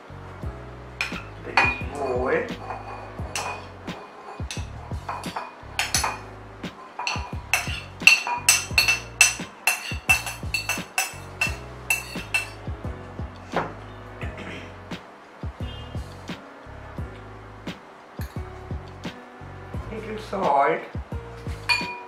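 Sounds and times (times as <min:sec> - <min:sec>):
glass bowls clinking: 0:01.0 - 0:02.0, 0:02.6 - 0:12.6, 0:21.7 - 0:22.0
utensil scraping a bowl: 0:07.0 - 0:12.6.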